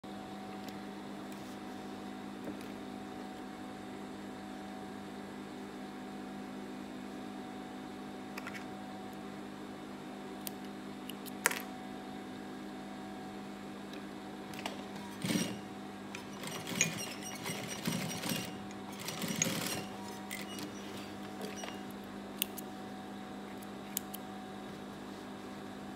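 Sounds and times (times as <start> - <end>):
sewing machine motor humming: 14.5 - 22.0.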